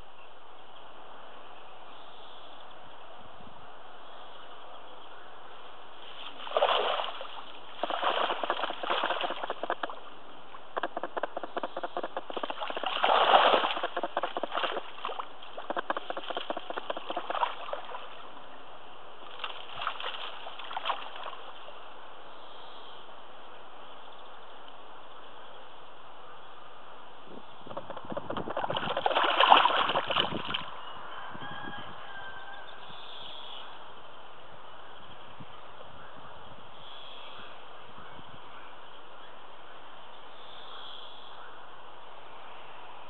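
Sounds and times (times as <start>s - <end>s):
fish splashing in shallows: 6.0s - 10.1s, 10.8s - 18.3s, 19.2s - 21.6s, 27.7s - 30.7s.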